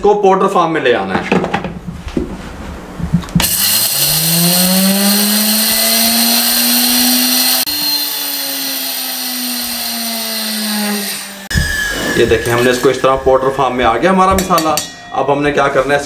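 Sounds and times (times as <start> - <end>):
spice grinder motor whine: 3.4 - 11.5.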